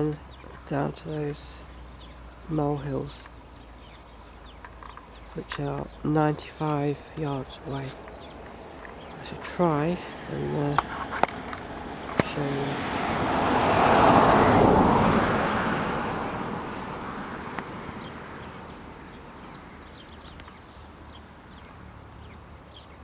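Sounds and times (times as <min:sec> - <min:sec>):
car passing on road: 0:07.8 - 0:23.0.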